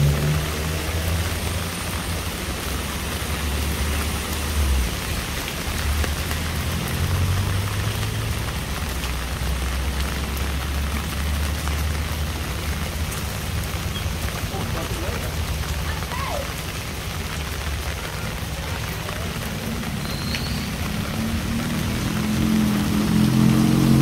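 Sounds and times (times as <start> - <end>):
steady rain: 0.0 - 24.0.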